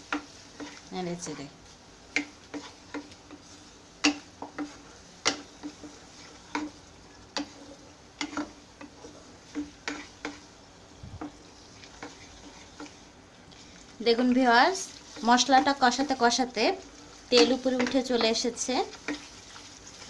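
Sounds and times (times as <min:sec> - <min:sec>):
wooden spatula scraping pan: 0:00.0 - 0:10.6, 0:11.2 - 0:20.0
faint sizzle of frying: 0:00.0 - 0:20.0
spatula knocking against pan: 0:04.0 - 0:05.9.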